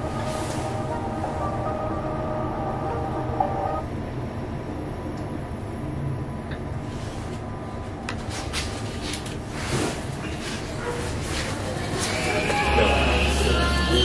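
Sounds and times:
background music: 0:00.0 - 0:03.9, 0:11.8 - 0:14.0
lift cabin low hum: 0:00.0 - 0:14.0.

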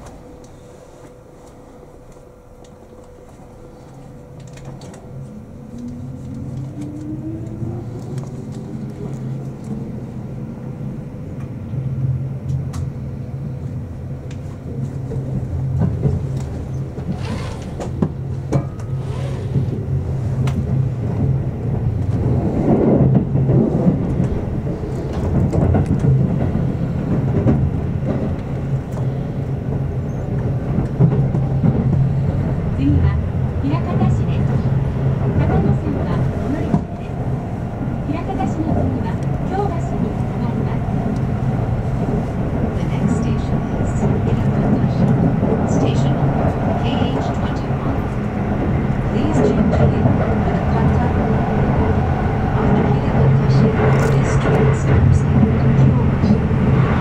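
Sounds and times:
wheels rumbling on rails: 0:00.0 - 0:57.0
train motor whine: 0:15.9 - 0:20.0.

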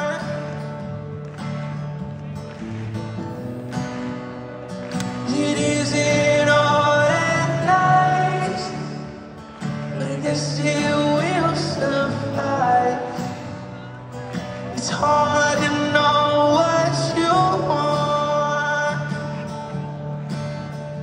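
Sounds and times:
man singing: 0:00.0 - 0:00.6, 0:05.2 - 0:19.9
guitar: 0:00.0 - 0:21.0.

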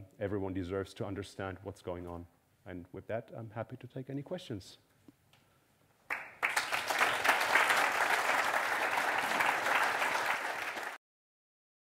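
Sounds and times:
audience applauding: 0:06.1 - 0:11.0.

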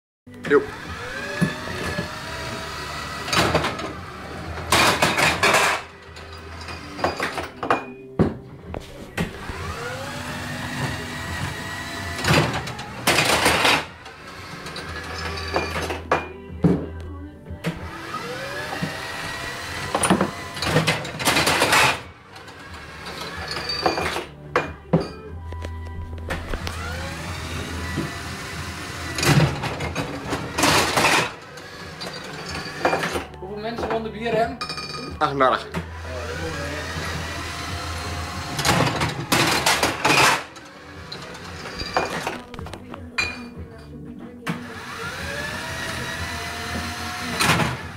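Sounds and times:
background music: 0:00.3 - 0:47.9
electric motor humming: 0:00.4 - 0:07.4, 0:09.2 - 0:15.7, 0:17.6 - 0:23.7, 0:26.3 - 0:33.3, 0:35.8 - 0:43.0, 0:44.5 - 0:47.9
small motor mechanism running: 0:00.6 - 0:07.0
rattling bursts: 0:00.7 - 0:07.7, 0:09.4 - 0:16.1, 0:17.8 - 0:24.3.

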